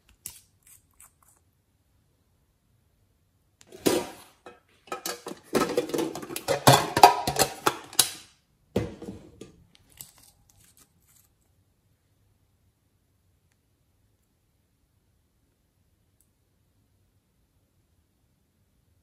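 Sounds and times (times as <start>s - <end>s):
hard cases clicking and clattering: 4.9s - 8.2s.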